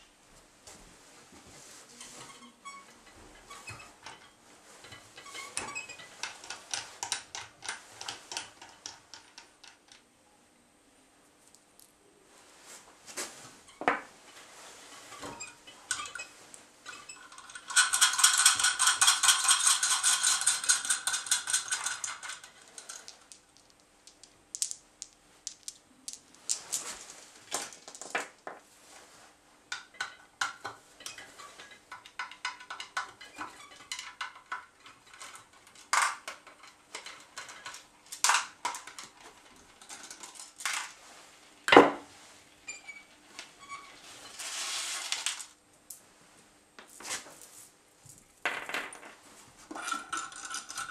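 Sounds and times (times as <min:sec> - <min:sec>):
metal parts clinking and knocking: 0:15.1 - 0:24.8, 0:29.8 - 0:41.0, 0:49.7 - 0:50.9.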